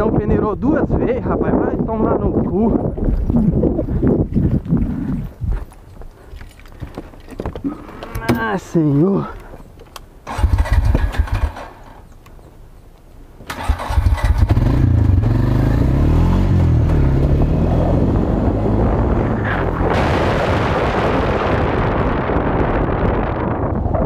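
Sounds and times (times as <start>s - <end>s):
quad bike engine running: 10.3s - 12.0s, 13.9s - 19.9s.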